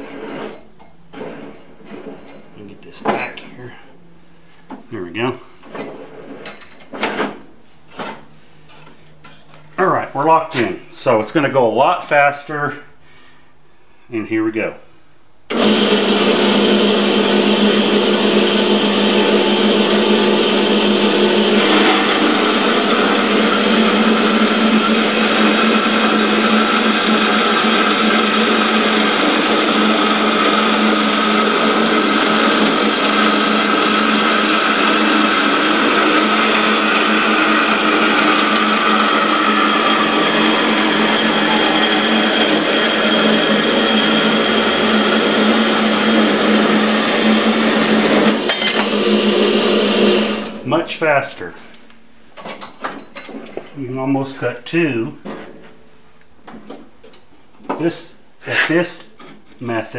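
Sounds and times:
band saw cutting metal: 15.5s - 50.8s.

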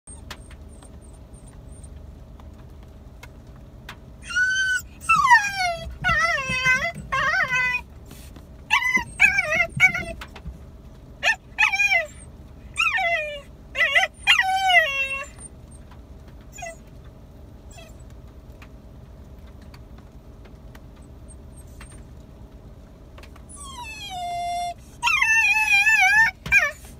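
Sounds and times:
dog whining and yipping: 0.1s - 2.0s, 4.2s - 7.9s, 8.7s - 10.3s, 11.2s - 15.9s, 16.5s - 16.9s, 17.7s - 18.1s, 21.2s - 22.0s, 23.4s - 26.9s.

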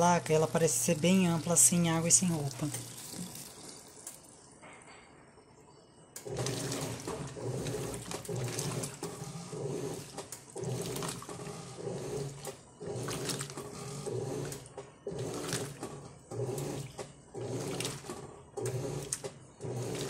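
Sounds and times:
water sloshing: 0.0s - 4.0s, 6.3s - 14.6s
washing machine agitating: 0.0s - 4.5s, 6.2s - 20.0s.

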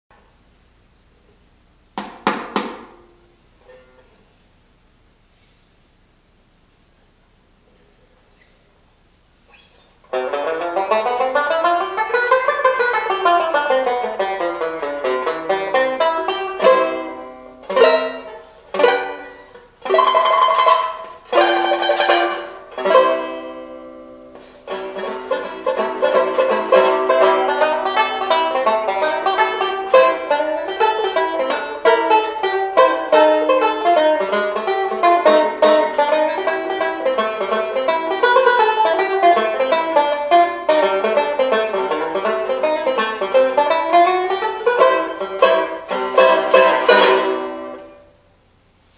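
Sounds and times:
banjo playing slow blues: 10.0s - 48.2s.

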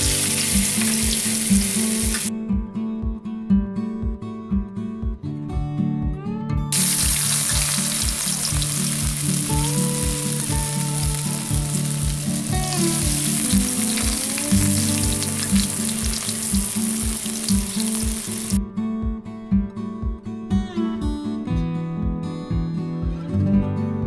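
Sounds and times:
oil sizzling while frying: 0.0s - 2.3s, 6.7s - 18.6s
guitar background music: 0.0s - 24.0s.

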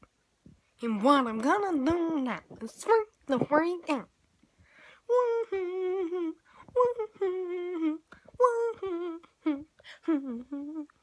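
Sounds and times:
boy humming with vibrato: 5.1s - 11.0s.

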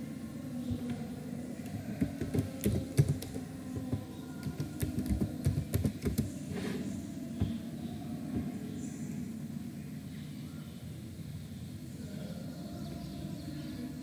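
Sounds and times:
computer keyboard typing: 2.0s - 3.4s, 4.4s - 6.3s.

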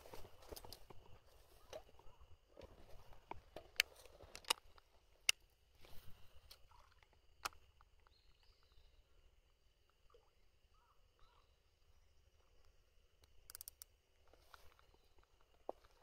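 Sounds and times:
fishing reel clicks: 13.5s - 13.9s.

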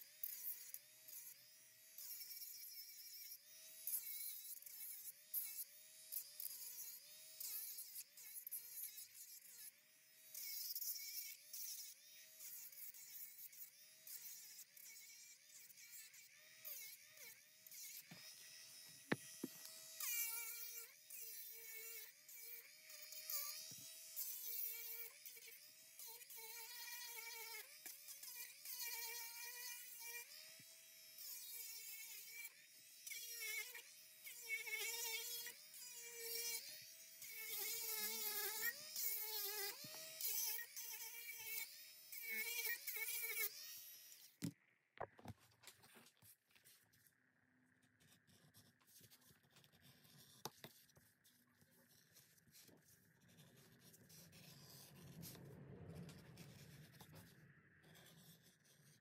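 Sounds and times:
electric hand tool motor whining: 0.0s - 44.5s.

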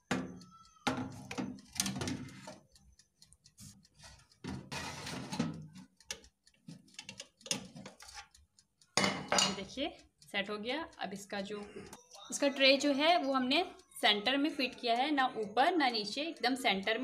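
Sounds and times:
baking tray sliding into oven: 4.7s - 5.4s.

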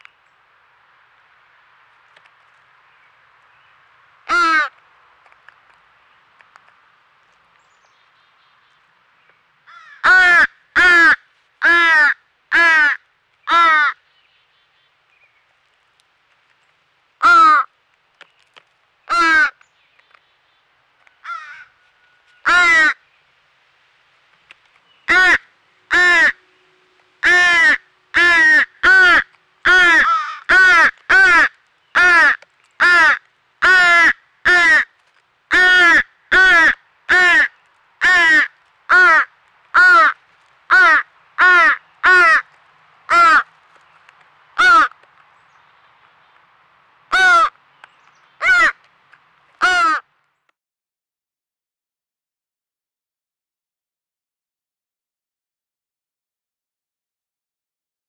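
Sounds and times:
crow cawing harshly: 4.3s - 4.8s, 9.7s - 14.0s, 17.2s - 17.7s, 19.1s - 19.6s, 21.2s - 21.8s, 22.4s - 23.0s, 25.1s - 26.4s, 27.2s - 42.5s, 43.1s - 43.5s, 44.6s - 45.0s, 47.1s - 47.6s, 48.4s - 48.8s, 49.6s - 50.1s.

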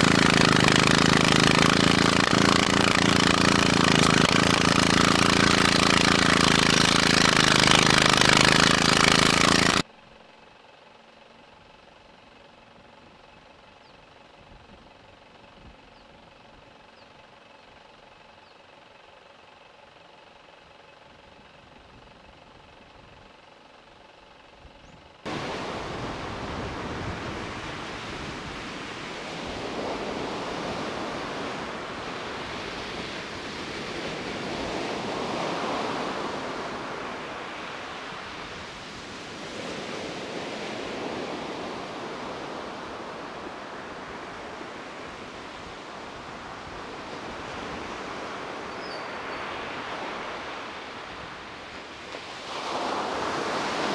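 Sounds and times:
surf washing up pebble beach: 0.0s - 9.9s, 25.3s - 53.9s
faint steady hum: 0.0s - 53.9s.

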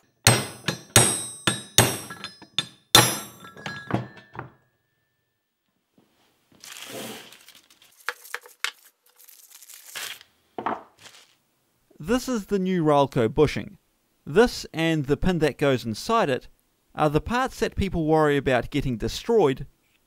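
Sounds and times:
hammer striking metal: 0.0s - 4.4s
waxed paper crackling: 6.5s - 10.4s, 11.0s - 11.4s.

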